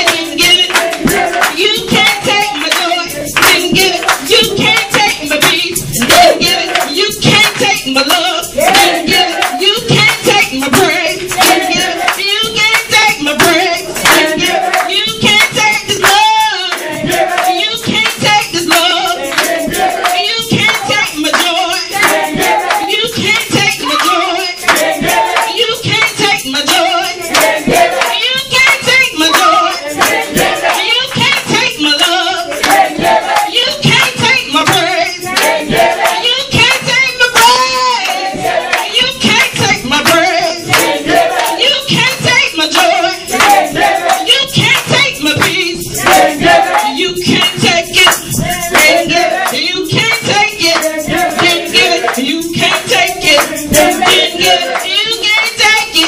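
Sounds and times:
hand clapping: 0:00.0 - 0:56.0
woman singing into a microphone: 0:00.0 - 0:56.0.

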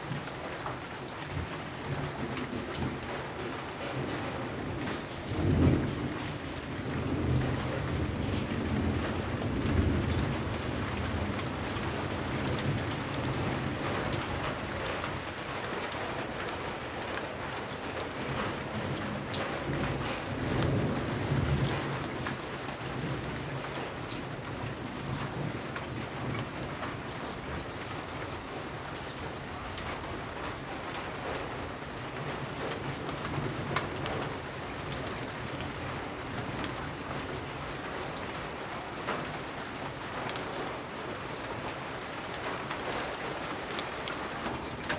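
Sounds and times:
heavy rain falling: 0:00.0 - 0:44.9
rolling thunder: 0:04.0 - 0:14.2.

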